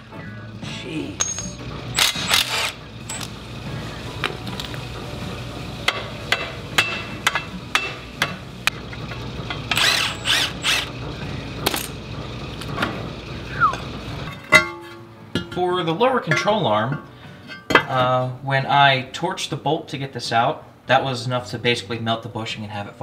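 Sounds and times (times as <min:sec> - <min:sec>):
metal clinks of tools: 0:01.2 - 0:02.5
cordless power tool bursts: 0:02.0 - 0:03.3, 0:09.7 - 0:10.9.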